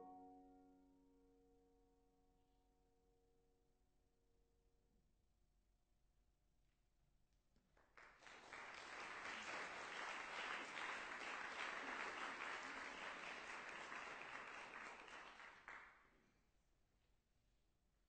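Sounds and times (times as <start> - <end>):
audience applauding: 7.8 - 15.9.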